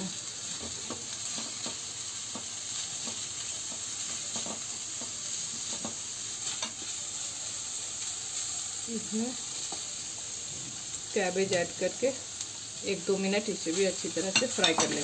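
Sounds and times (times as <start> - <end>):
vegetables sizzling in oil: 0.0 - 15.0
spatula scraping and tapping pan: 0.6 - 6.9, 14.2 - 15.0.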